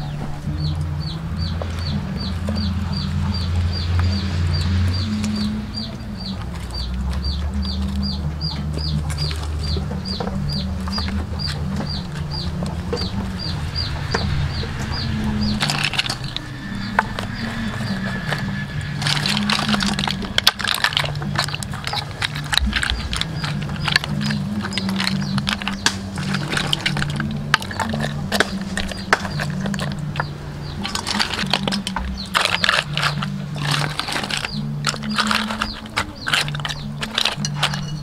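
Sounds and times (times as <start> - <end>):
low hum: 0.0 - 38.0
shells clicking and clattering: 19.0 - 38.0.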